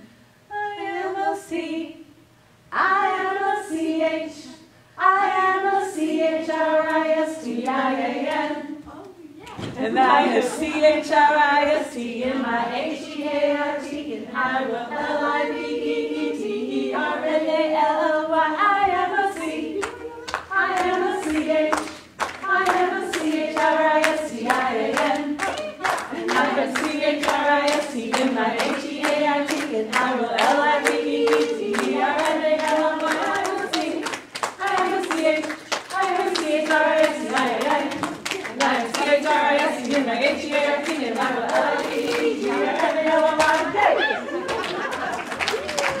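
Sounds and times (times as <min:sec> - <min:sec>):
women singing together: 0:00.0 - 0:45.2
hand-clapping on the beat: 0:19.4 - 0:46.0.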